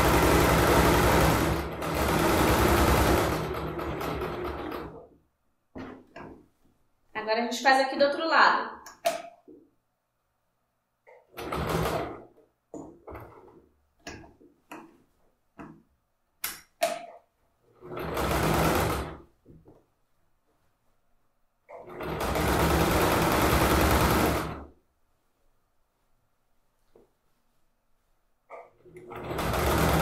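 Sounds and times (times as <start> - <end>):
sewing machine stitching: 0.0 - 5.2, 11.1 - 14.4, 16.9 - 19.3, 21.7 - 24.7, 28.5 - 30.0.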